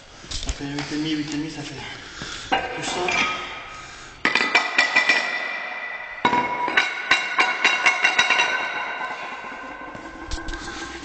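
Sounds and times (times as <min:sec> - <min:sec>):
iron weight plates clanking: 0:04.3 - 0:11.0.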